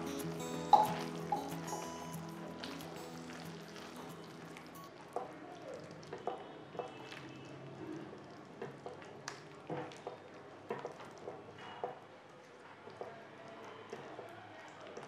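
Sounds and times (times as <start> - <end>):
spatula stirring thick gravy: 2.5 - 4.7.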